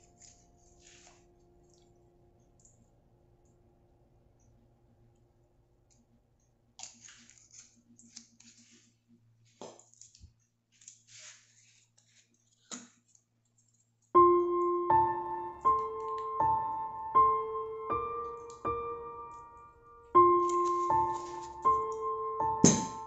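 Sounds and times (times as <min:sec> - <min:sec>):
soft piano music: 0:00.0 - 0:02.1, 0:14.2 - 0:23.0
clicks and scrapes of handling: 0:06.8 - 0:09.0.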